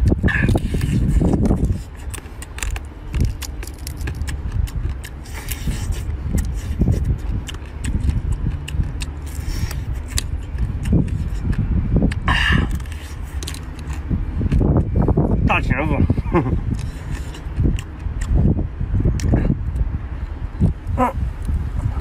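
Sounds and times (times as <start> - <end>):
chewing and sucking: 0.0 - 15.0, 16.6 - 19.9
low background rumble: 0.0 - 22.0
crab shell cracking: 0.4 - 14.6.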